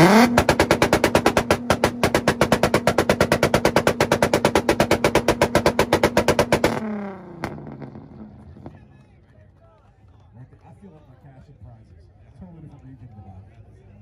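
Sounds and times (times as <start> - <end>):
car engine revving with pops and bangs: 0.0 - 8.9.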